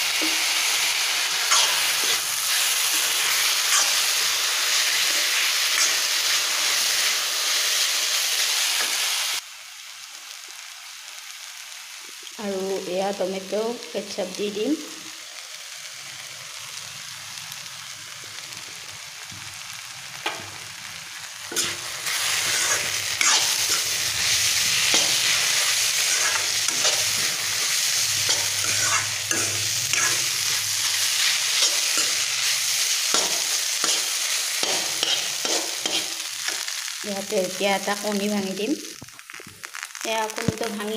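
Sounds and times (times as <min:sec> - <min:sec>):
noodles sizzling in wok: 0:00.0 - 0:40.9
spatula scraping and tapping wok: 0:00.1 - 0:00.7, 0:20.2 - 0:20.6, 0:21.5 - 0:36.8.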